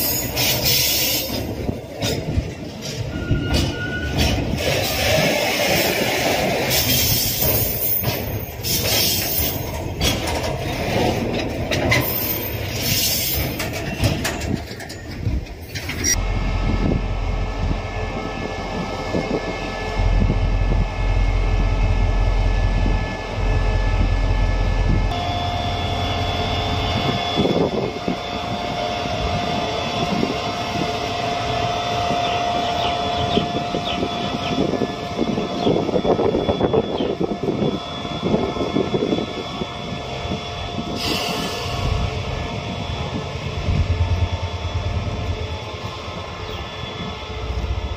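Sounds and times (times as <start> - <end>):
diesel locomotive engine drone: 0.0 - 47.9
train rattling and clattering: 0.0 - 47.9
steady whine: 33.5 - 47.9.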